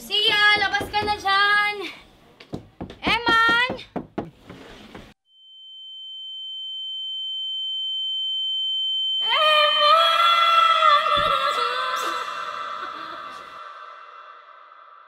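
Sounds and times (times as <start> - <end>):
high-pitched sine tone: 5.2 - 11.2.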